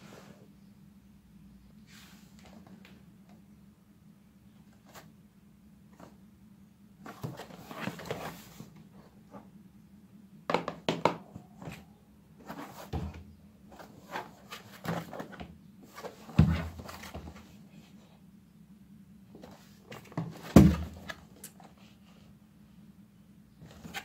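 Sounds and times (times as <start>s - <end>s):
knocks and dull thumps: 10.5s - 11.4s.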